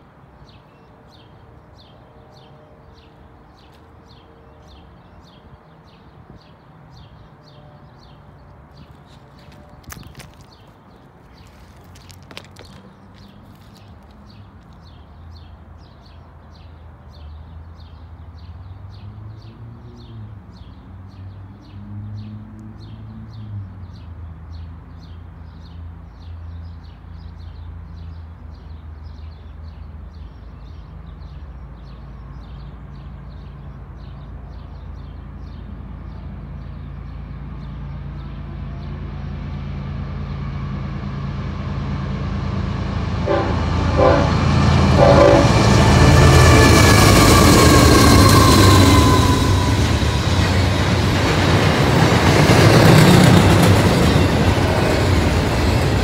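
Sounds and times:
diesel locomotives rumbling: 0:27.7 - 0:56.0.

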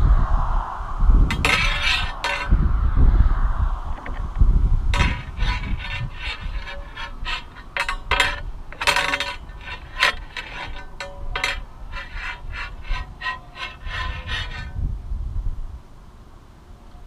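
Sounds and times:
wind rumble on microphone: 0:00.0 - 0:17.0
squeaky scraping: 0:01.3 - 0:02.6, 0:04.9 - 0:14.8.

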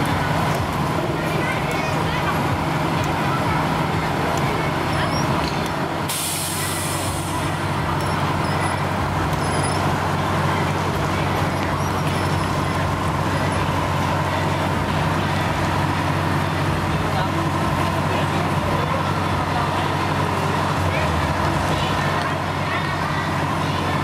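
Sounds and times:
fire truck engine running: 0:00.0 - 0:24.0
air brakes hissing: 0:06.0 - 0:07.7.

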